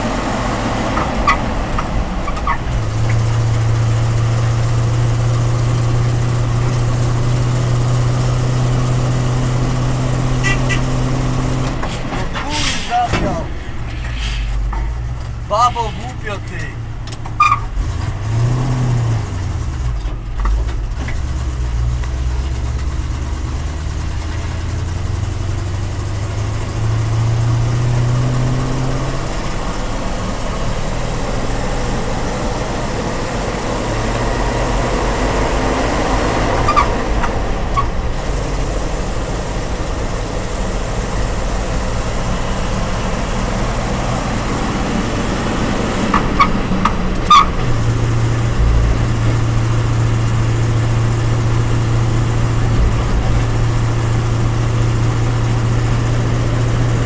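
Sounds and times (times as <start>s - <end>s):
truck engine running inside cab: 0.0s - 57.0s.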